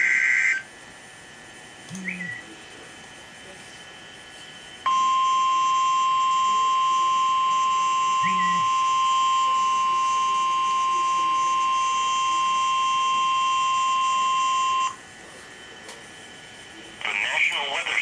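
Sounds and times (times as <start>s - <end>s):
loud alarm beep: 4.9s - 15.0s.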